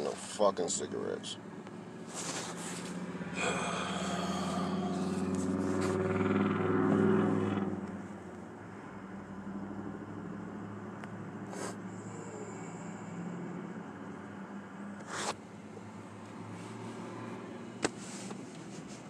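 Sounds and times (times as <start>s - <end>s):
vehicle passing: 0.6s - 8.2s, 15.8s - 17.8s.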